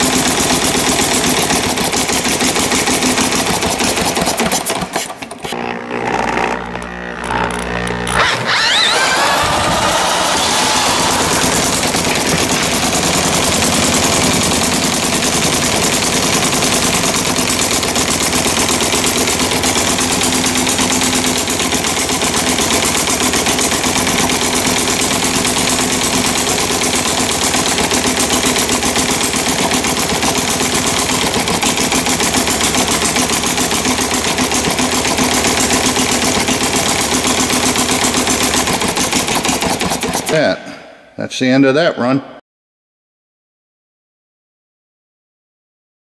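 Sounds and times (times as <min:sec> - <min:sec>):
model gas engine firing pops: 0:01.1 - 0:05.6.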